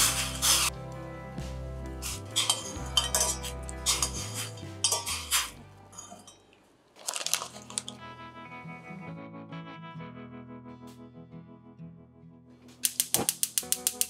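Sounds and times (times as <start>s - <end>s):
metal utensil clinking in saucepan: 2.4s - 5.3s, 6.0s - 6.5s.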